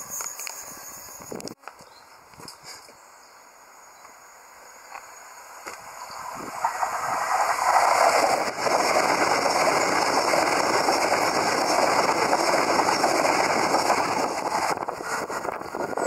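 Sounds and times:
train passing at speed: 3.5 - 16.0.

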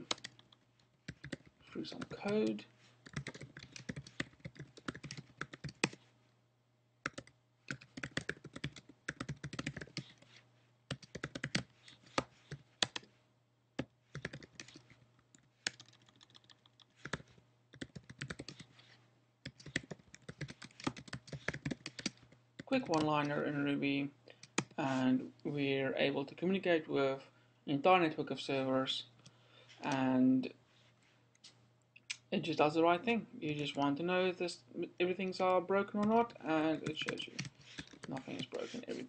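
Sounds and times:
typing on computer keyboard: 0.0 - 6.0, 7.0 - 10.2, 10.9 - 13.1, 14.1 - 18.7, 19.5 - 22.3, 36.8 - 38.6.

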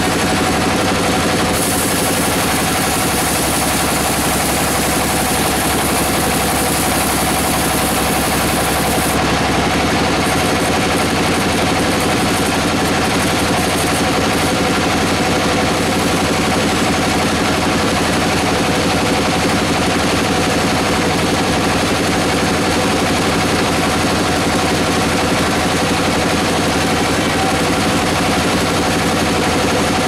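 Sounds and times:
band saw cutting log: 0.0 - 18.0.

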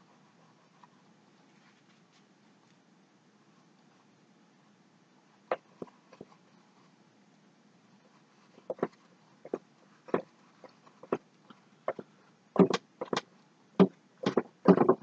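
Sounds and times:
paintbrush swishing on canvas: 0.0 - 2.4.

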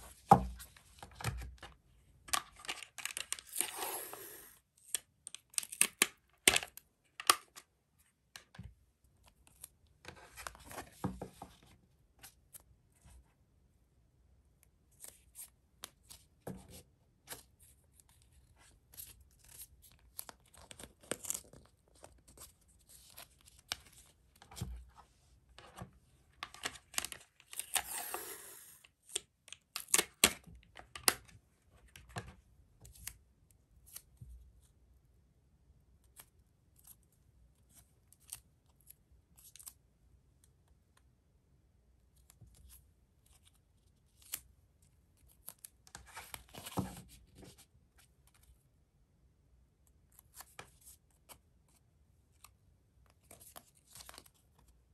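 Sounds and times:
tape tearing off roll: 3.5 - 4.6
hands handling tape and cardboard: 14.9 - 25.0.

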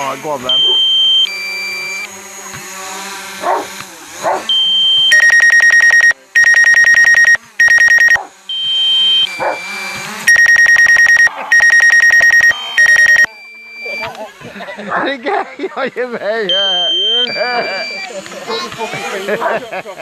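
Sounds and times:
fast electronic beeping: 4.5 - 14.1, 16.5 - 18.2
short rising yelps: 9.3 - 13.3.

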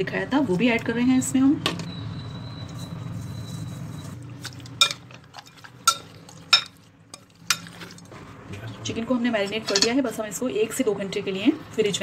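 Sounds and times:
spoon stirring thick marinade: 2.6 - 8.1.

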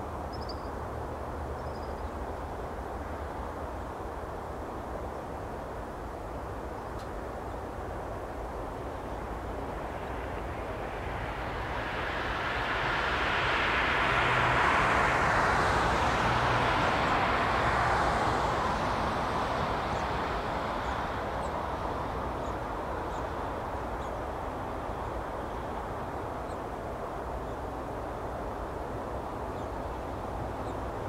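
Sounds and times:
distant jet engines roaring: 7.8 - 31.0.

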